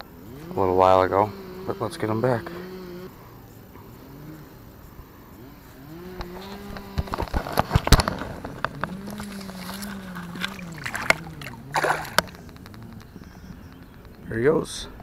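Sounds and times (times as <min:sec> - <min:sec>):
chainsaw running: 0:00.0 - 0:04.8, 0:05.4 - 0:13.0
fish splashing in water: 0:07.2 - 0:12.8.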